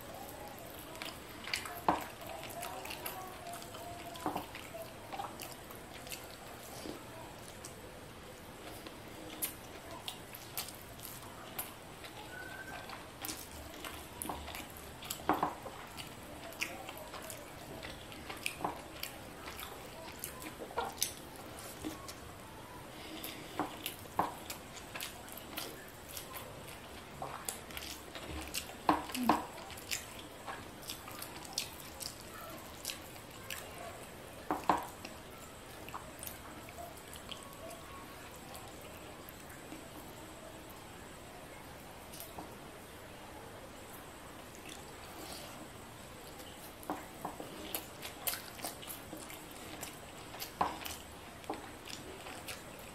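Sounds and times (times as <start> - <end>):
person chewing with mouth clicks: 8.6 - 22.2, 23.0 - 33.8, 44.4 - 52.9.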